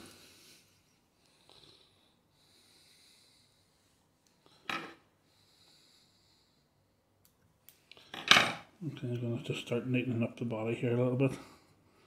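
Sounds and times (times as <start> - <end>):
faint breathing: 0.0 - 7.2, 11.3 - 12.0.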